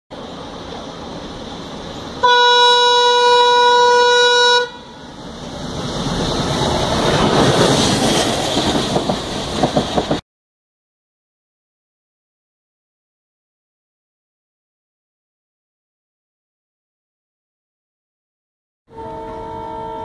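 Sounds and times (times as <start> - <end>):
train rumble: 0.1 - 10.2
locomotive horn: 2.2 - 5.2, 18.9 - 20.0
train wheel clatter: 6.6 - 10.2.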